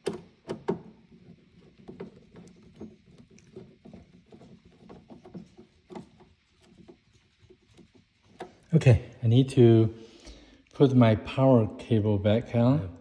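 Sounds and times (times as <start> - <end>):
screw ticks and scrapes: 0.0 - 8.9.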